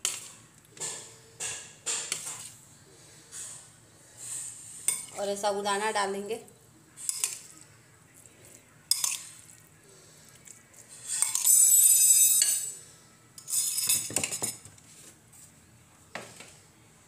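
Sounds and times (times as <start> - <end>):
spoon scraping dishes: 7.0 - 7.5, 8.9 - 9.6, 10.9 - 12.8, 13.4 - 14.7.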